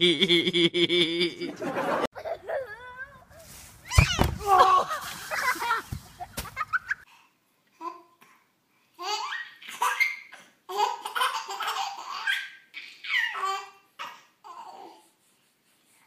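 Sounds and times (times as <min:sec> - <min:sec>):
baby laughing: 0:05.3 - 0:07.1, 0:09.0 - 0:14.9.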